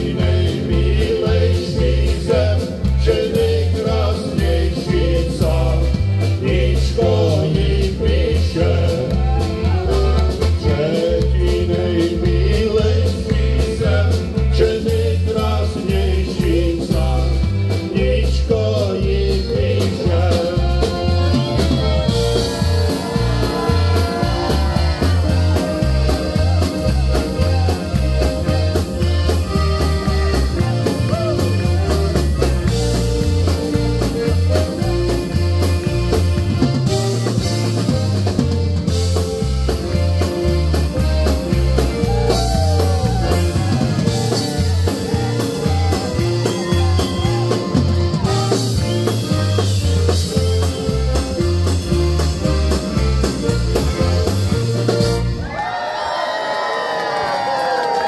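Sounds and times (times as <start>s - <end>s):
person singing: 0.0s - 32.6s
accordions: 0.0s - 55.6s
polka band playing: 0.0s - 56.3s.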